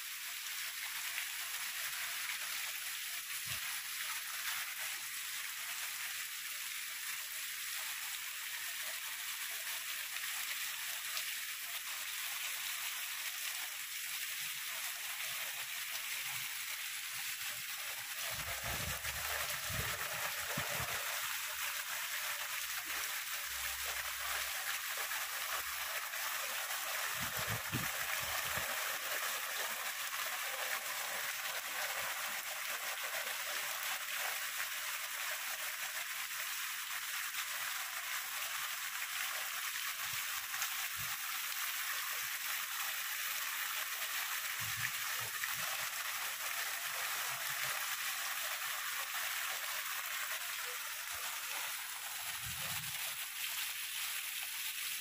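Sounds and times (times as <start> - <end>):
heavy rain hissing: 17.6 - 21.3, 27.1 - 28.7
water splashing onto gravel: 18.3 - 21.1, 27.1 - 28.6.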